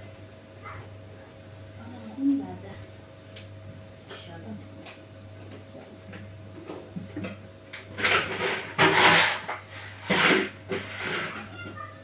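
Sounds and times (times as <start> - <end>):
rustling and scraping in kitchen: 4.1 - 12.0.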